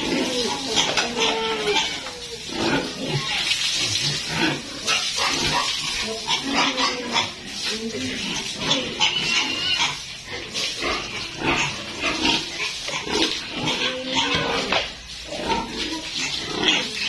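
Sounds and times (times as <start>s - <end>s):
pigs grunting: 0.0s - 17.0s.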